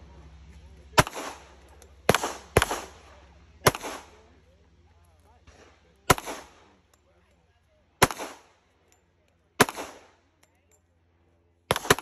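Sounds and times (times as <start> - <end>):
pistol shots with echo: 1.0 - 3.0, 3.6 - 4.3, 6.0 - 6.7, 8.0 - 8.6, 9.6 - 10.2, 11.7 - 12.0.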